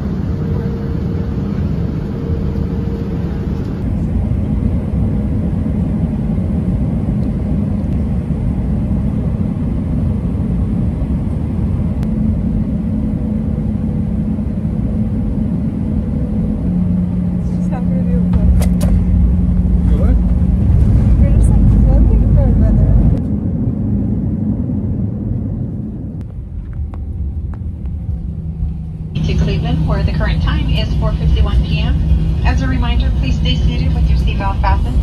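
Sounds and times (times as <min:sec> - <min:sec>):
airliner engines and airflow roar: 0:00.0 - 0:35.0
faint steady hum: 0:24.4 - 0:35.0.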